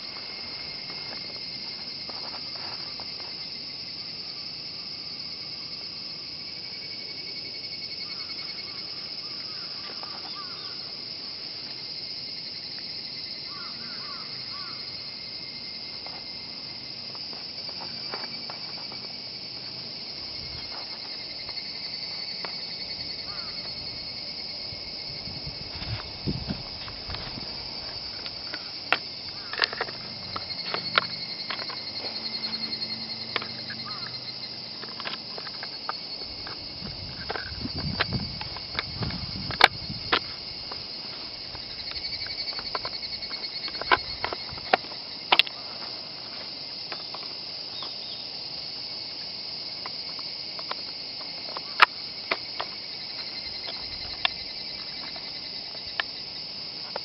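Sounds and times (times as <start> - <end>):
insects trilling: 0.0 - 57.0
rifle parts clicking and knocking: 26.9 - 31.8.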